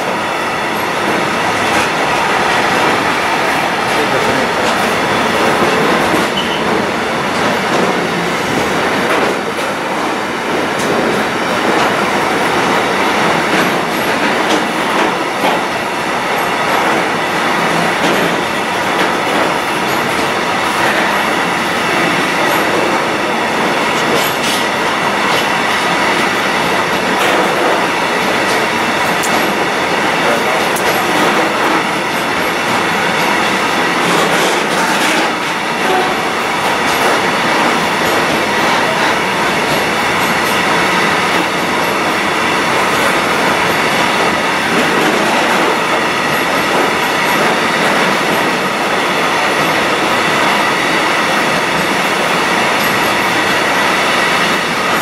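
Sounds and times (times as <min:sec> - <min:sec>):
train wheels rolling on rail: 0:00.0 - 0:55.0
clacks: 0:01.0 - 0:08.0, 0:16.4 - 0:21.4, 0:23.8 - 0:41.6.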